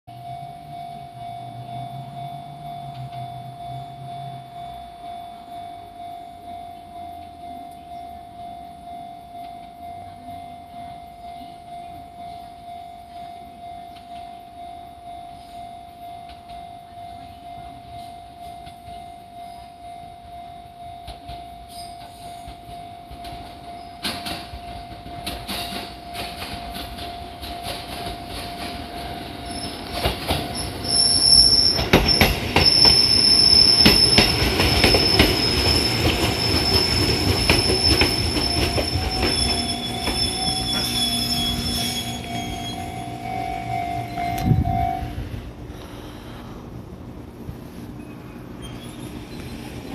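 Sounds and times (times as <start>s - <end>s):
level crossing alarm: 0.1s - 45.4s
wheels clacking over rail joints: 21.0s - 45.0s
wheel and brake squeal: 21.7s - 22.6s, 29.4s - 45.1s, 48.0s - 49.9s.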